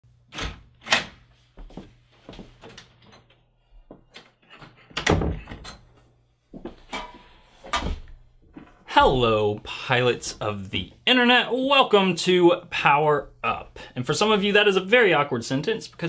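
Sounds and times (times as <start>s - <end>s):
knocks and thumps of movement: 6.6s - 9.0s.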